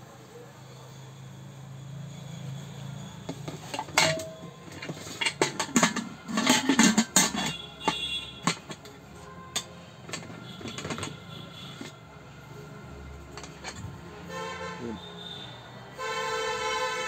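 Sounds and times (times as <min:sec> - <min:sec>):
steel clinks and knocks: 0:03.2 - 0:12.0, 0:13.3 - 0:14.0.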